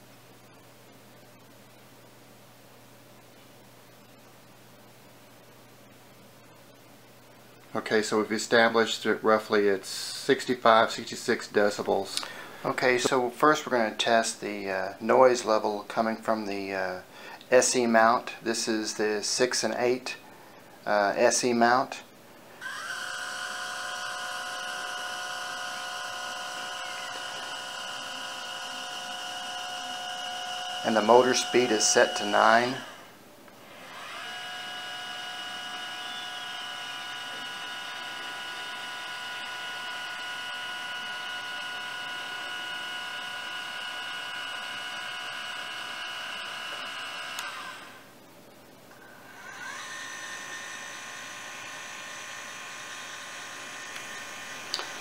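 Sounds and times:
motor and gear whine: 0:22.6 - 0:48.1, 0:48.9 - 0:55.0
motor stopping click: 0:46.2 - 0:47.9, 0:53.8 - 0:55.0.

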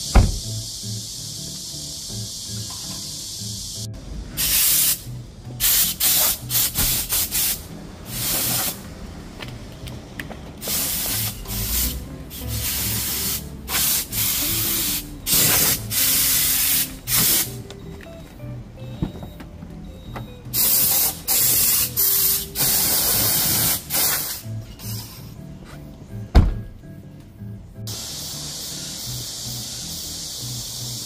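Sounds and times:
air blow gun hissing bursts: 0:00.0 - 0:08.8, 0:10.6 - 0:17.6, 0:20.6 - 0:25.2, 0:27.9 - 0:31.0.

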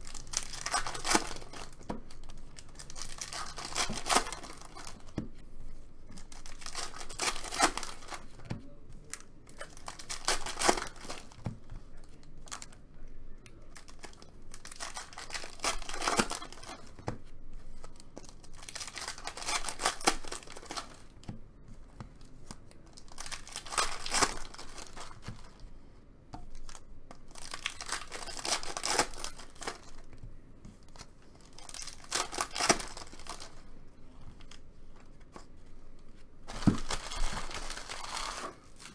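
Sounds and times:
foil wrappers tearing and crinkling: 0:00.0 - 0:05.2, 0:06.1 - 0:08.4, 0:09.0 - 0:11.4, 0:13.7 - 0:17.0, 0:17.8 - 0:21.1, 0:23.0 - 0:25.6, 0:26.6 - 0:30.1, 0:31.0 - 0:33.7, 0:36.5 - 0:38.9.

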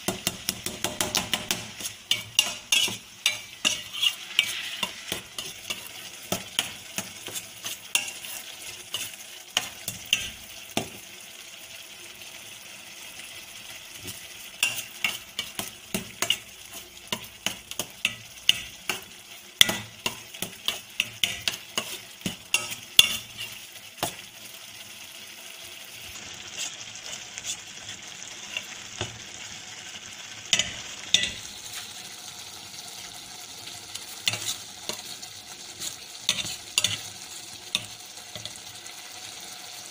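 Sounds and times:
faint sizzle: 0:00.0 - 0:39.9
metal spoon scraping steel pan: 0:01.1 - 0:10.4, 0:19.6 - 0:23.6, 0:30.6 - 0:31.8, 0:34.2 - 0:37.1.

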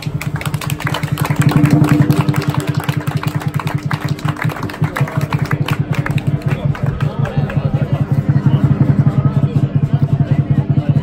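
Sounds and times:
fast drum roll: 0:00.2 - 0:11.0
cymbal strokes: 0:01.4 - 0:04.5.

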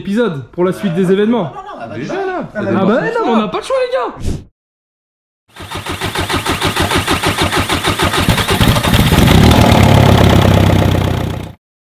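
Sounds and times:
starter cranking engine: 0:05.5 - 0:11.5
diesel engine running: 0:05.6 - 0:11.6.

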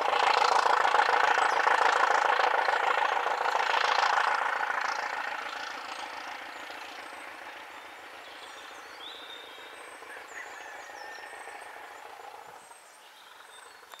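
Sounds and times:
diesel train engine beating: 0:00.0 - 0:13.9
birds chirping: 0:04.8 - 0:14.0.

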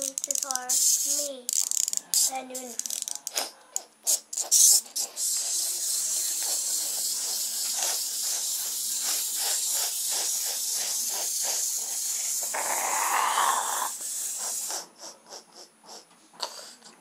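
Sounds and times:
toy steps clicking on wood: 0:00.0 - 0:03.9
wind-up toy motor whirring: 0:00.0 - 0:15.2
breathy hiss: 0:02.1 - 0:17.0.

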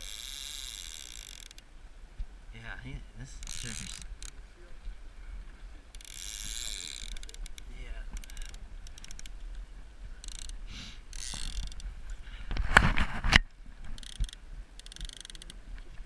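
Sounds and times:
fishing reel clicking: 0:00.0 - 0:01.6, 0:03.4 - 0:04.3, 0:06.0 - 0:09.6, 0:10.2 - 0:11.9, 0:14.0 - 0:15.6.

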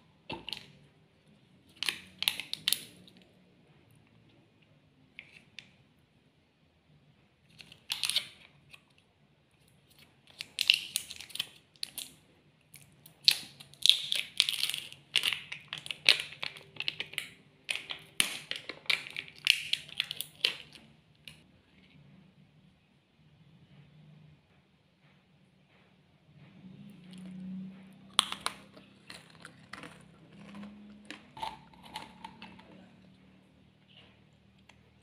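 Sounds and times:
foil lid crinkling and tearing: 0:07.6 - 0:08.4, 0:10.4 - 0:12.1, 0:13.2 - 0:20.8.

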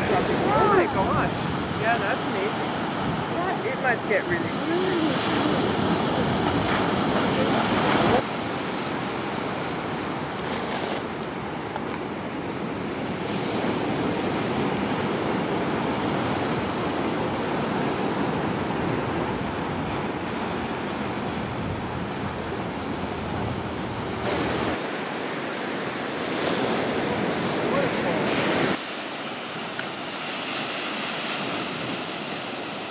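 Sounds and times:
wind on microphone: 0:00.0 - 0:25.2
ocean waves breaking: 0:00.0 - 0:32.9.

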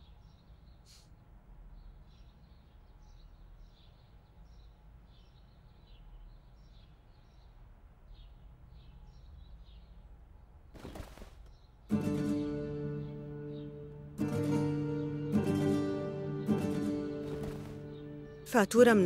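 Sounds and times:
small birds chirping: 0:00.0 - 0:19.0
rustling: 0:17.2 - 0:18.0.

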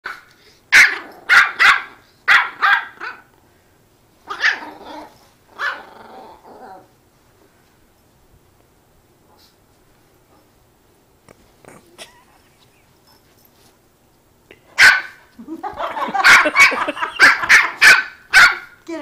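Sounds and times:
dog barking: 0:00.1 - 0:03.3, 0:04.3 - 0:04.7, 0:14.8 - 0:15.2, 0:16.1 - 0:18.8.

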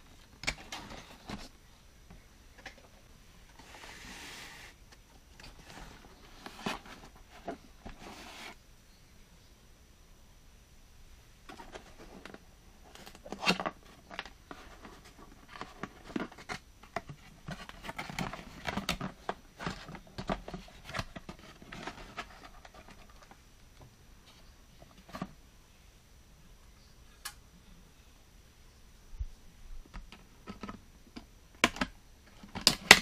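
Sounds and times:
plastic toy scraping cardboard: 0:03.6 - 0:04.8, 0:05.5 - 0:08.6.

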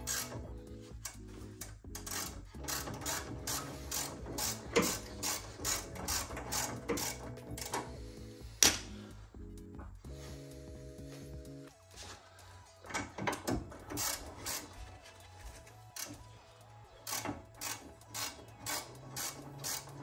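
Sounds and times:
ratchet wrench clicking: 0:01.9 - 0:07.8, 0:13.8 - 0:14.8, 0:17.0 - 0:20.0.

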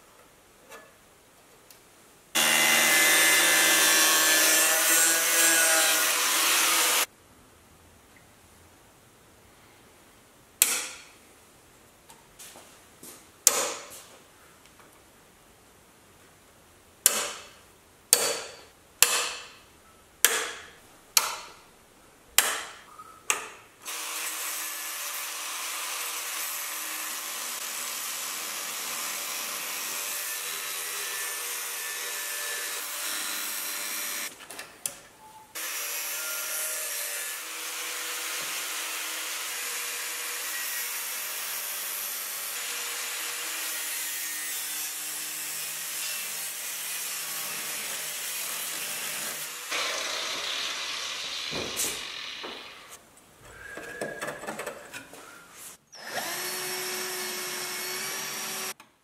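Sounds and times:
angle grinder cutting steel: 0:02.4 - 0:07.1, 0:35.6 - 0:53.0.

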